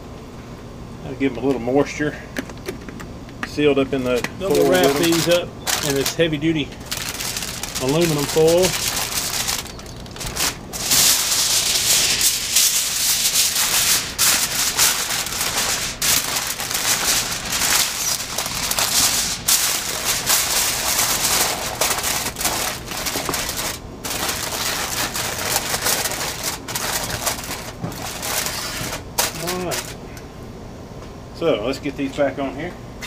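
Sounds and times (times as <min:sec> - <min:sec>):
aluminum foil crinkling: 0:04.0 - 0:30.1.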